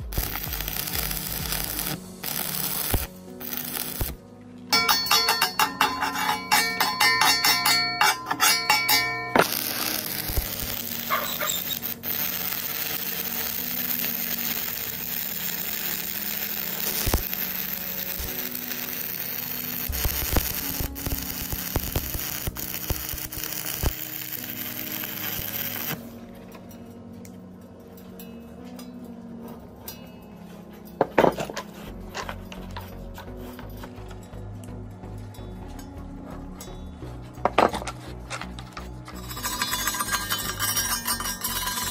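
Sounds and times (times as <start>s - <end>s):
arc welding sizzling hiss: 0.0s - 4.2s, 4.8s - 26.1s, 39.1s - 41.9s
background music: 0.0s - 41.9s.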